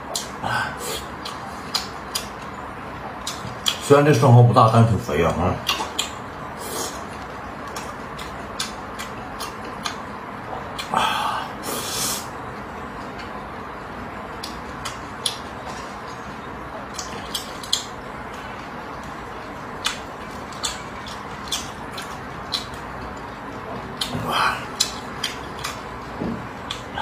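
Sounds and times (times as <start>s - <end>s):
mouth smacking clicks: 0.1s - 2.5s, 3.2s - 3.8s, 5.6s - 7.0s, 7.7s - 10.0s, 10.6s - 11.0s, 14.4s - 15.4s, 16.9s - 18.0s, 19.8s - 22.8s, 24.0s - 25.8s, 26.6s - 27.0s
person slurping: 0.2s - 1.1s, 10.8s - 12.3s, 24.0s - 25.4s
steady hiss: 10.8s - 12.4s.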